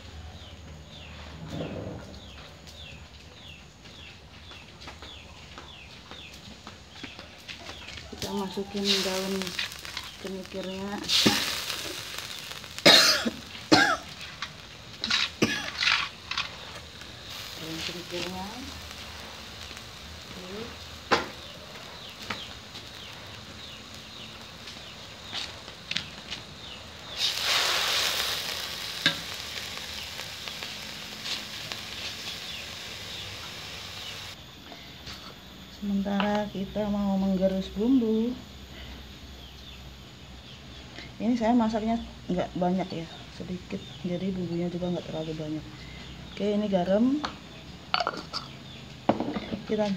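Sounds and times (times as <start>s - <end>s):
leaves sizzling in wok: 0.0s - 49.9s
spatula stirring in wok: 8.6s - 34.3s
person coughing: 12.8s - 14.1s, 15.4s - 15.8s.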